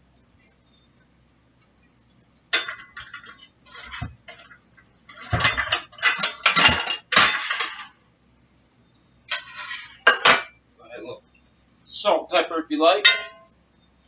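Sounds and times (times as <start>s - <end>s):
metal spoon scraping frying pan: 9.3s - 10.5s.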